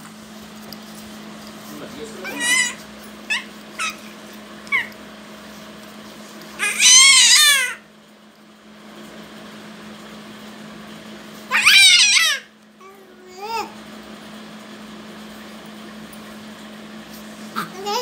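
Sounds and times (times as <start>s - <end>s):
baby squealing: 2.2s - 5.0s, 6.6s - 7.8s, 11.5s - 12.5s.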